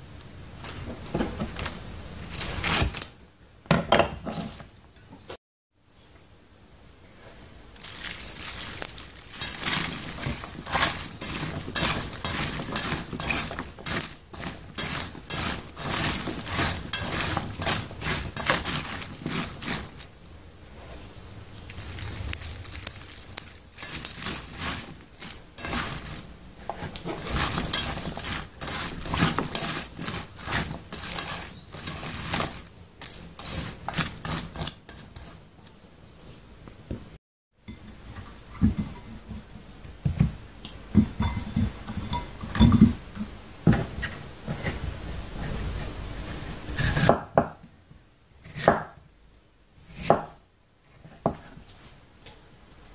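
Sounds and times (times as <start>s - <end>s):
cabbage crackling and rustling in bowl: 7.2s - 35.5s.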